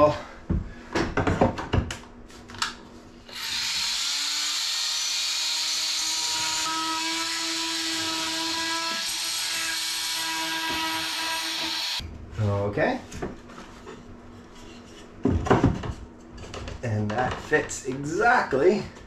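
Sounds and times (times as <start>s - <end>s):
oscillating multi-tool cutting wood: 3.3s - 12.0s.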